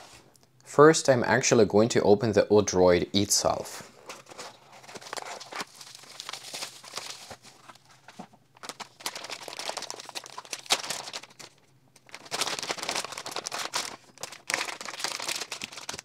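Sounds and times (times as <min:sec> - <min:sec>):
plastic packaging crinkling: 0:04.0 - 0:16.0.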